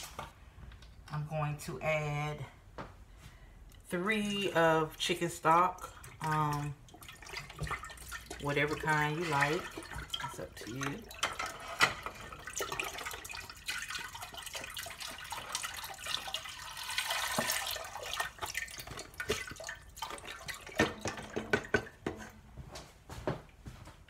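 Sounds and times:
broth splashing into a pot: 5.7s - 22.1s.

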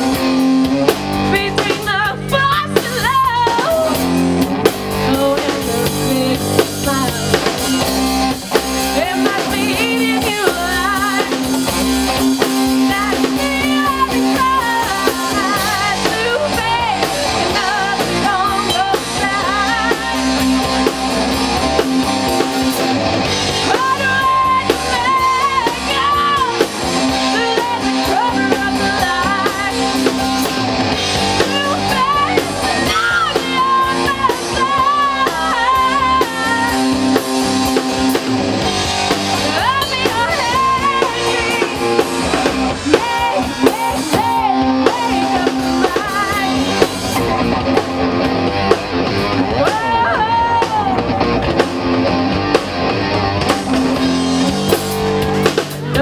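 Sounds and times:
drum kit: 0.0s - 56.0s
electric guitar: 0.0s - 56.0s
woman singing: 1.3s - 4.1s, 5.0s - 7.7s, 8.9s - 11.7s, 12.7s - 20.8s, 23.6s - 30.6s, 31.2s - 37.7s, 39.4s - 42.1s, 42.8s - 47.3s, 49.6s - 51.1s.

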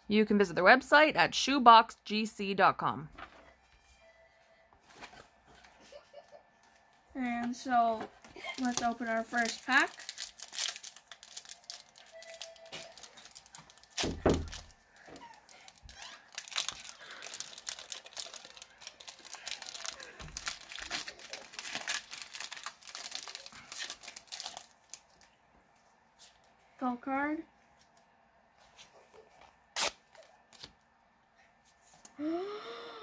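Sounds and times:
foil wrapper crinkling and tearing: 8.4s - 25.3s, 29.8s - 30.7s
cards handled crackling: 8.5s - 25.3s, 29.8s - 30.8s.

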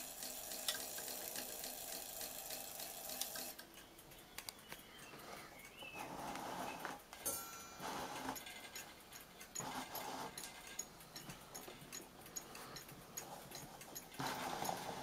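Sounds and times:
clock ticking: 0.0s - 15.0s
rustling noise: 5.2s - 7.1s.

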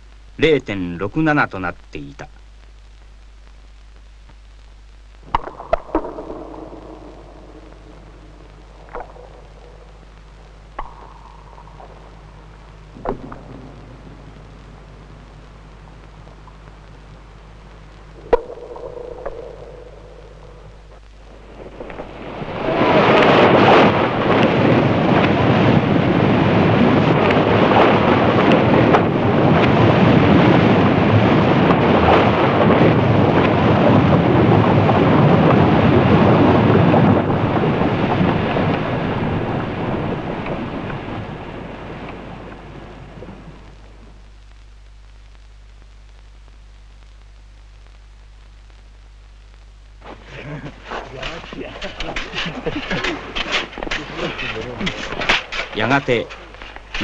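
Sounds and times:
snow avalanche rushing: 21.4s - 43.5s, 50.0s - 57.0s.

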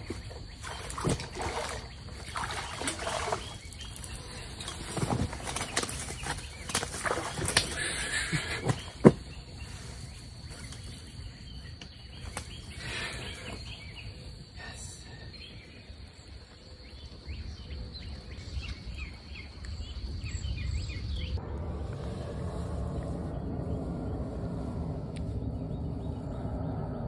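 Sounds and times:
high insect drone: 0.0s - 18.5s
birds chirping: 0.0s - 27.0s
low wind rumble: 0.0s - 27.0s.

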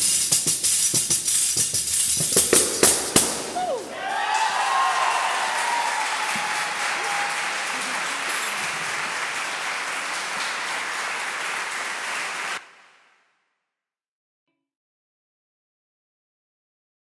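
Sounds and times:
audience applauding: 2.5s - 12.9s.

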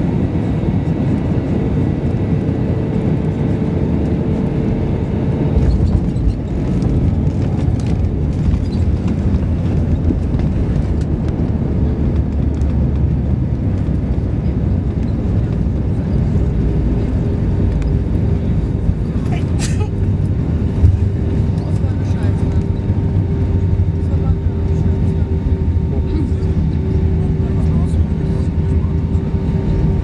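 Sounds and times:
airliner engines and wheels rumbling: 0.0s - 30.0s.

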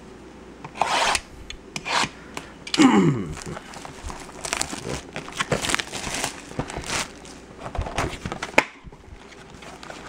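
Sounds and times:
cardboard and plastic wrap rustling: 3.3s - 10.0s.

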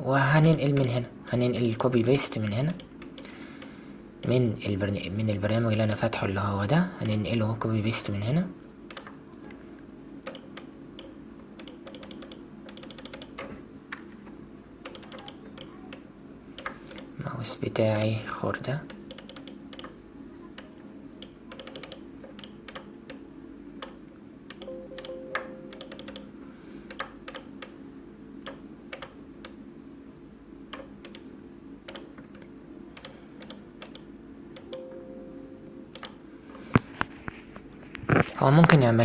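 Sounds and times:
steady low hum: 0.0s - 39.0s
computer mouse and keyboard clicks: 10.2s - 14.1s, 14.8s - 17.1s, 17.9s - 18.2s, 18.9s - 20.0s, 20.6s - 23.2s, 25.7s - 26.3s, 26.9s - 27.8s, 28.4s - 29.6s, 30.7s - 31.3s, 31.9s - 34.8s.

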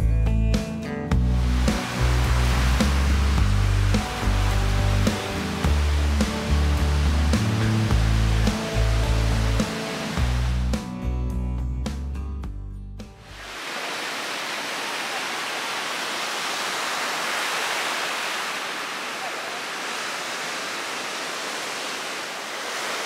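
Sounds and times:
music: 0.0s - 13.4s
surf breaking on a beach: 1.2s - 10.7s, 13.2s - 23.0s.

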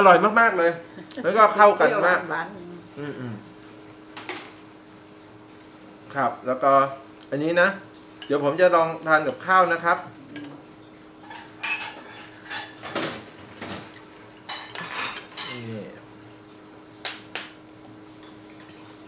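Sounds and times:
cutlery clinking on ceramic plate: 11.2s - 13.0s, 14.4s - 15.6s.

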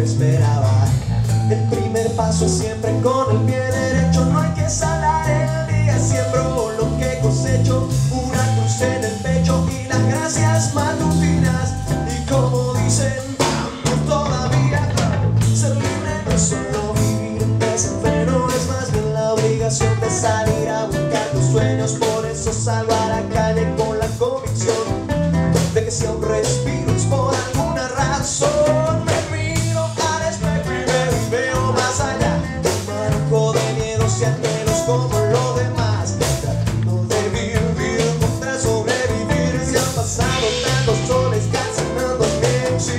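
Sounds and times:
drum kit beat: 0.0s - 42.9s
electric bass: 0.0s - 42.9s
man singing: 0.0s - 42.9s
second guitar: 0.0s - 42.9s.

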